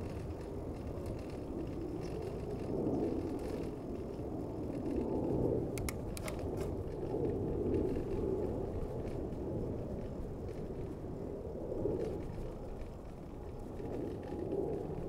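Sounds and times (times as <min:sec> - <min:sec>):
bicycle clicks and rattles: 0:00.0 - 0:15.0
traffic and tyres rumble: 0:00.0 - 0:15.0.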